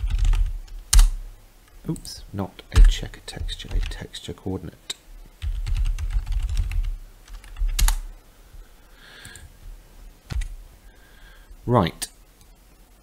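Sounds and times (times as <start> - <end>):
keyboard typing: 0.0 - 1.1, 5.4 - 8.0, 10.3 - 10.5.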